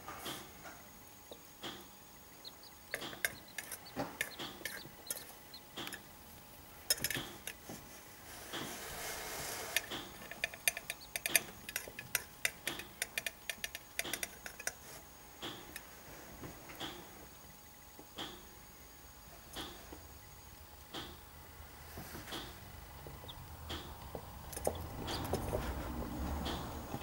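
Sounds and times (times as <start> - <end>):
pecking ticks on plastic dish: 1.2 - 7.8, 9.7 - 15.9, 22.2 - 26.7.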